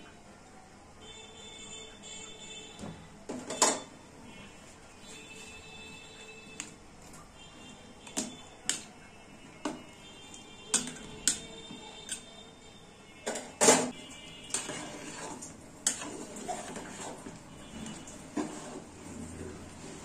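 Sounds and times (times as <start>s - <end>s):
metal spatula scraping aluminium pot: 14.5s - 19.4s.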